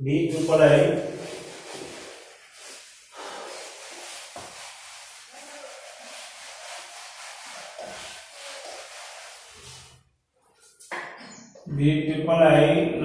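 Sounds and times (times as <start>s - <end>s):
eraser rubbing on whiteboard: 0.3s - 10.0s.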